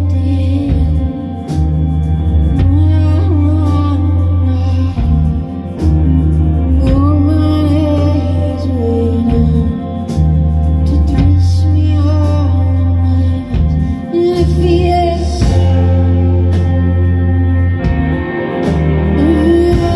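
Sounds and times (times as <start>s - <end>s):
deep sustained bass notes: 0.0s - 19.9s
live band playing slow heavy song: 0.0s - 19.9s
drum and cymbal hits: 15.4s - 19.9s.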